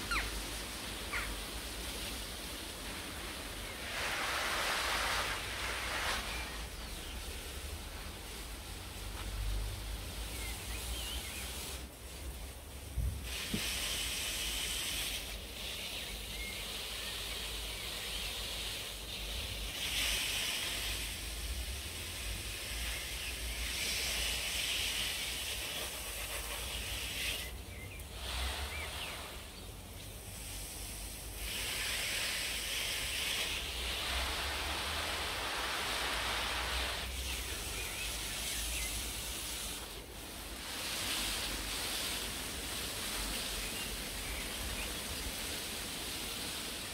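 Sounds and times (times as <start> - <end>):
wind gusting through plants: 0.0 - 46.9
wind rumble on microphone: 12.9 - 13.3.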